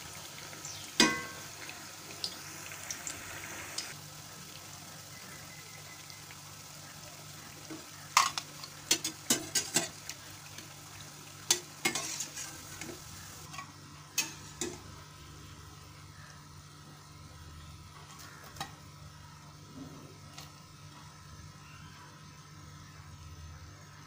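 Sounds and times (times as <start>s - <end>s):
food sizzling in oil: 0.0s - 16.8s
metal spatula clinking on pan: 1.0s - 1.4s.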